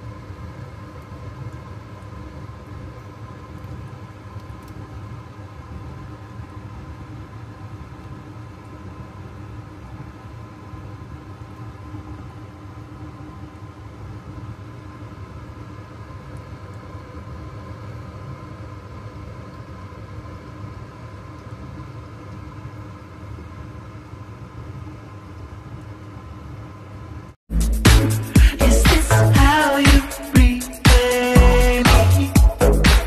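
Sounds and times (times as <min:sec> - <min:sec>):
mechanical hum with low rumble: 0:00.0 - 0:33.0.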